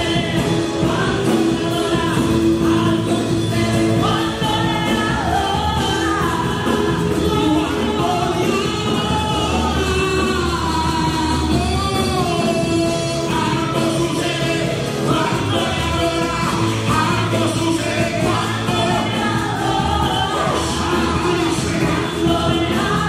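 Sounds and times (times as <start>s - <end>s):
church band playing: 0.0s - 23.0s
singers singing: 0.0s - 23.0s.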